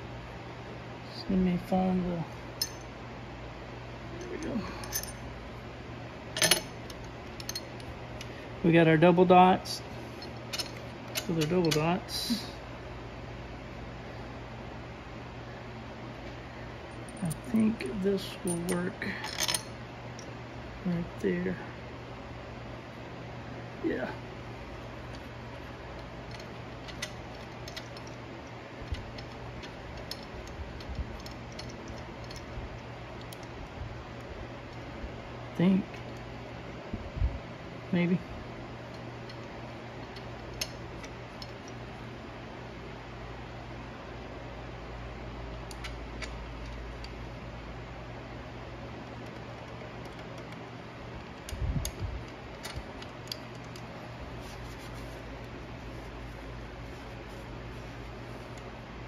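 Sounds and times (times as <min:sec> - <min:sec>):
shop fan hum: 0:00.0 - 0:59.0
metal parts clicking and tapping: 0:04.2 - 0:05.2, 0:06.4 - 0:08.3, 0:10.2 - 0:11.9, 0:18.5 - 0:20.3, 0:25.9 - 0:32.5, 0:38.9 - 0:41.8, 0:51.2 - 0:53.9.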